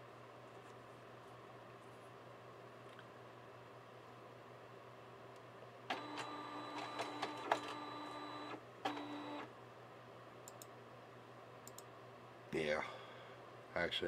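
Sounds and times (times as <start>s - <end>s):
scanner clicks: 5.9s - 9.5s, 10.4s - 10.8s, 11.6s - 11.9s
scanner motor whirring: 5.9s - 9.5s.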